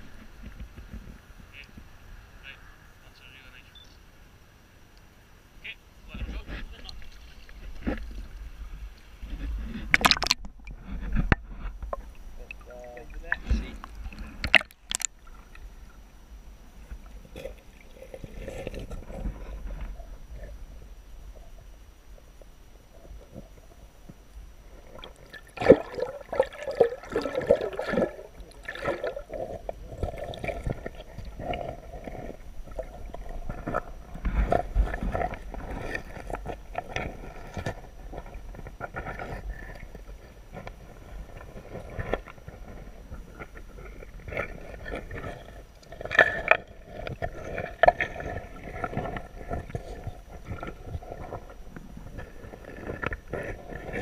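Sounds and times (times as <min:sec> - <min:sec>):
underwater swishing: 0:06.1 - 0:54.0
underwater knocks and bumps: 0:09.2 - 0:15.6, 0:24.9 - 0:54.0.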